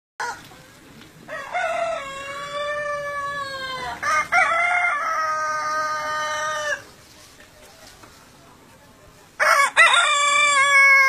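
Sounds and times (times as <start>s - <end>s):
roosters crowing: 1.2s - 7.0s, 9.4s - 11.0s.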